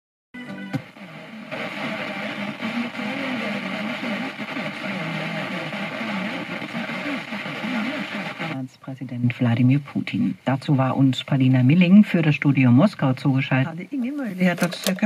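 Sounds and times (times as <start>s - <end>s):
radio static hiss: 0.4s - 15.0s
garbled radio voice: 1.0s - 8.6s.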